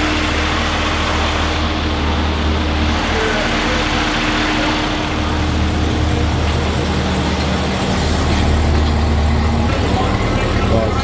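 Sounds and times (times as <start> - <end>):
machine drone: 0.0 - 11.0.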